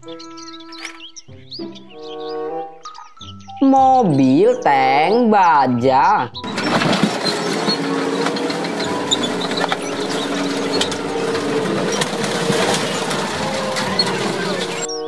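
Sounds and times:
clanking tank tracks: 6.4s - 15.0s
metal crunching: 6.4s - 15.0s
tank engine running: 6.4s - 15.0s.

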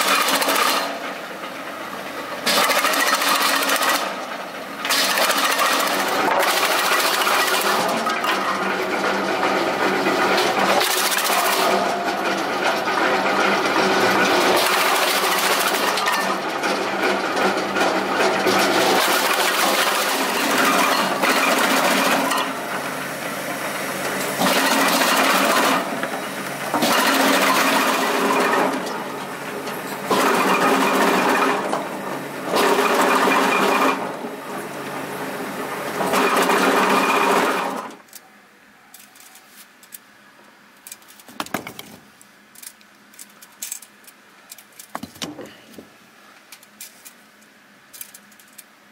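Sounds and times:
wood chipper chopping wood: 0.0s - 1.2s, 2.4s - 22.8s, 24.0s - 34.9s, 35.8s - 38.1s.

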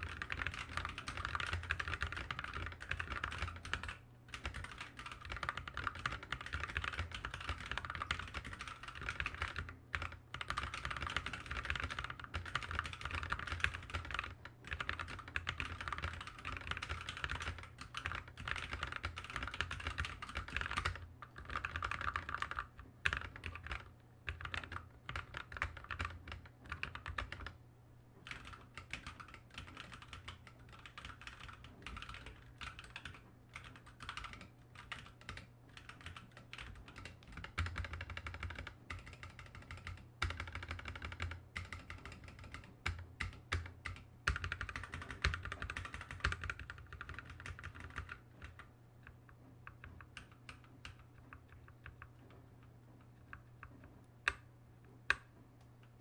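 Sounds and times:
mechanical keyboard typing: 0.0s - 27.6s, 28.2s - 56.0s.

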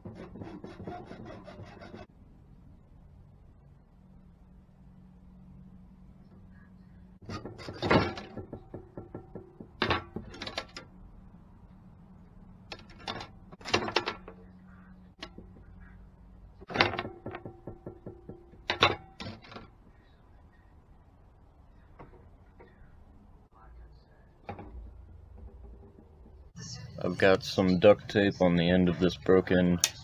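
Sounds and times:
knocks and clatter on tabletop: 7.2s - 10.8s, 16.6s - 19.7s, 24.5s - 26.5s.

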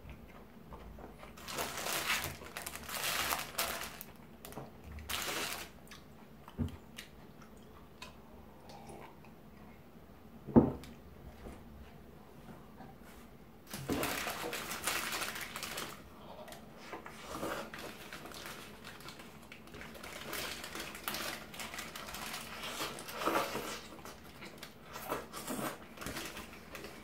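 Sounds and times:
paper wrapper crinkling: 1.3s - 5.8s, 13.7s - 16.0s, 17.6s - 23.8s, 25.9s - 27.0s.

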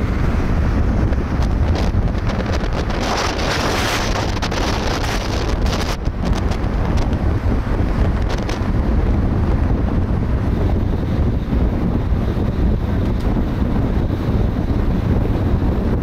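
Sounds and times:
road and tyre rumble: 0.0s - 16.0s
wind buffeting microphone: 0.0s - 16.0s.

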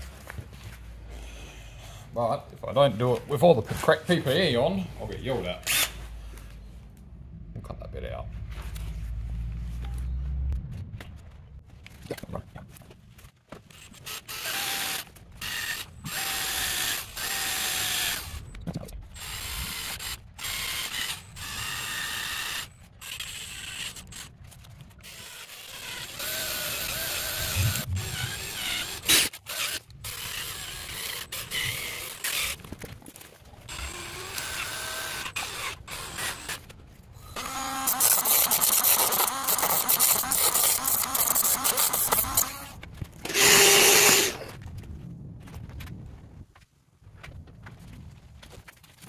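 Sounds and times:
cordless drill bursts: 5.6s - 6.0s, 14.0s - 18.5s, 19.2s - 24.2s, 25.0s - 32.6s, 33.7s - 36.6s, 37.2s - 44.5s.

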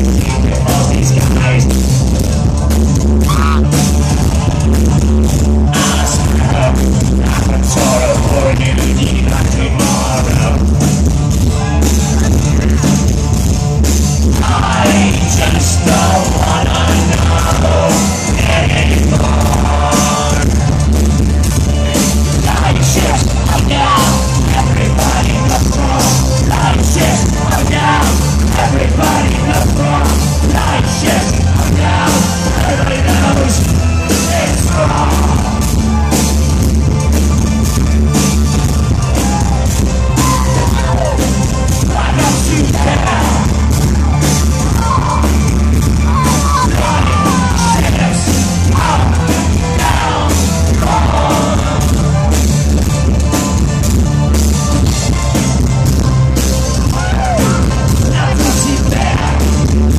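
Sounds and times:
heavy beat: 0.0s - 59.9s
synthesizers: 0.0s - 59.9s
person singing: 5.7s - 10.9s, 14.3s - 20.8s, 21.9s - 36.2s, 39.2s - 52.3s, 56.8s - 59.9s.

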